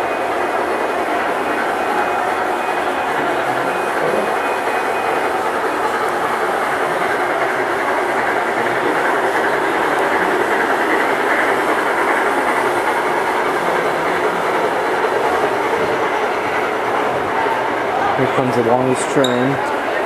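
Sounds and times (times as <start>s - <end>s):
model train wheels clattering on track: 3.0s - 16.7s.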